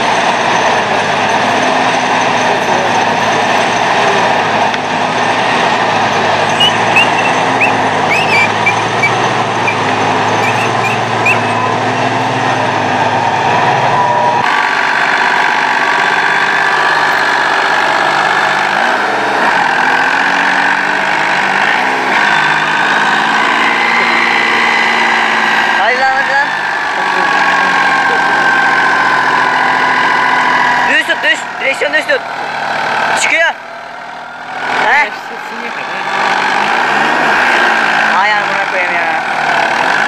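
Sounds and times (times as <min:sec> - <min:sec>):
tractor engine revving: 0:00.0 - 0:40.0
short high chirps: 0:06.5 - 0:09.8, 0:10.4 - 0:11.6.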